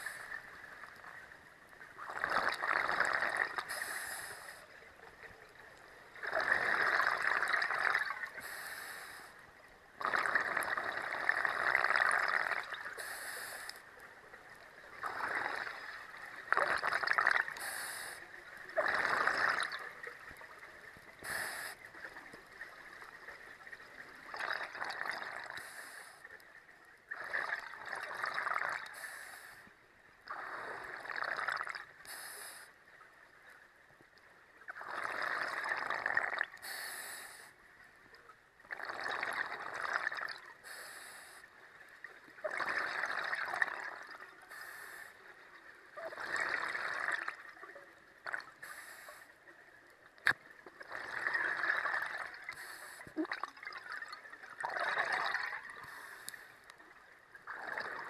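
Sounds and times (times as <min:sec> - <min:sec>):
regulator inhalation hiss: 0:03.7 - 0:04.6, 0:08.4 - 0:09.3, 0:13.0 - 0:13.8, 0:17.6 - 0:18.2, 0:21.2 - 0:21.9, 0:28.9 - 0:29.7, 0:32.1 - 0:32.7, 0:36.6 - 0:37.5, 0:40.6 - 0:41.5, 0:44.5 - 0:45.2, 0:48.6 - 0:49.3, 0:52.6 - 0:53.1
exhalation bubbling underwater: 0:18.8 - 0:19.9, 0:30.3 - 0:31.9, 0:34.8 - 0:36.6, 0:50.2 - 0:55.9.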